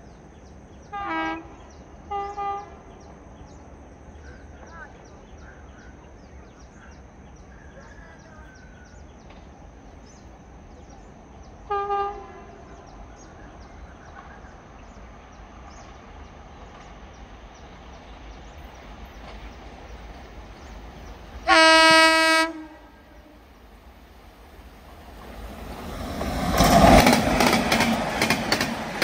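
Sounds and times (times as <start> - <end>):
electric locomotive horn blasts: 0.9 - 2.9, 11.7 - 12.7, 21.4 - 23.4.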